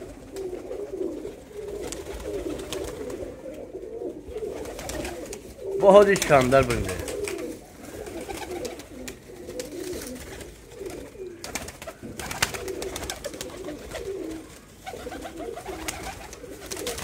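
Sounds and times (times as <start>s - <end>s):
pigeons cooing: 0.0s - 17.0s
wing flaps: 6.2s - 17.0s.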